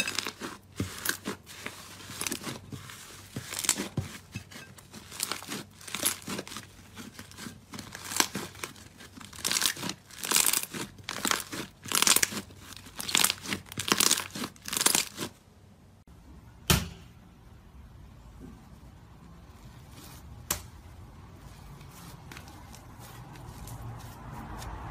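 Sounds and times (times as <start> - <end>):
slime squelching and crackling: 0.0 - 15.4.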